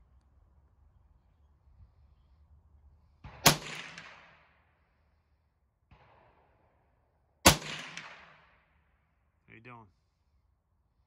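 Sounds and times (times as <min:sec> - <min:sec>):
rifle shot with echo: 0:03.2 - 0:04.7, 0:05.8 - 0:06.8, 0:07.4 - 0:08.8.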